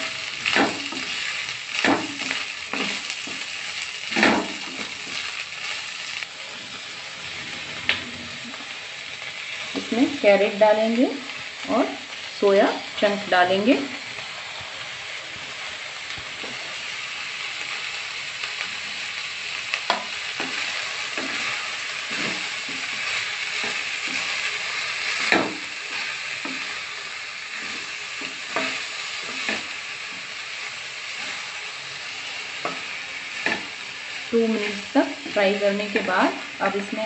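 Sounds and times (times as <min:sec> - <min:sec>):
spatula scraping and knocking pan: 0:00.0 - 0:03.5, 0:04.1 - 0:05.3, 0:19.9 - 0:26.8, 0:27.5 - 0:30.3, 0:32.6 - 0:33.8
vegetables sizzling in hot oil: 0:00.0 - 0:37.0.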